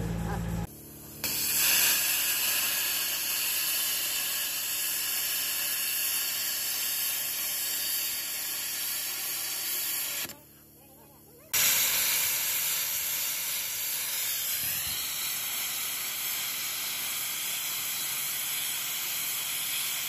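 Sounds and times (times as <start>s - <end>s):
cutting torch hissing: 1.1s - 10.3s, 11.4s - 20.0s.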